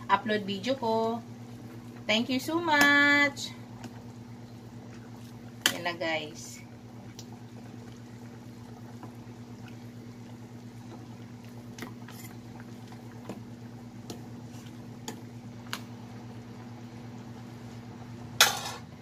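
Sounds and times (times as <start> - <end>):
soup bubbling in a pot: 0.0 - 19.0
steady low hum: 0.0 - 19.0
ladle stirring broth: 3.7 - 6.0, 6.7 - 17.9.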